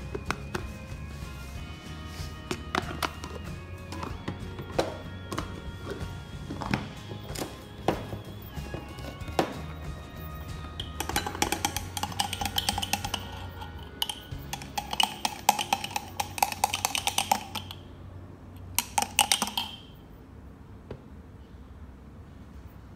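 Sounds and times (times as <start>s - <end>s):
metal straw clinking against glass: 10.4s - 17.8s, 18.8s - 20.0s.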